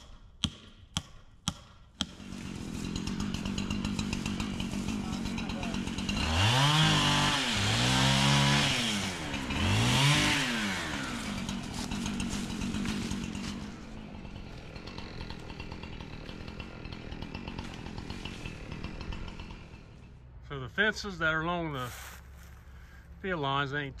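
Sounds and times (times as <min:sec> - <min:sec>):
chainsaw engine revving: 0:02.0 - 0:20.4.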